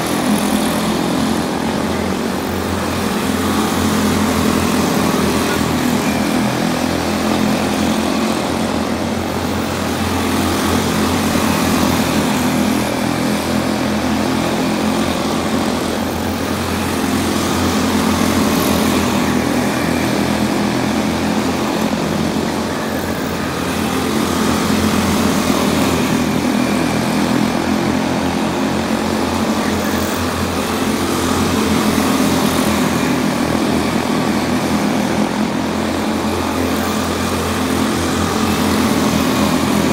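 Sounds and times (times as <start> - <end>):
small race car engines droning: 0.0 - 39.9.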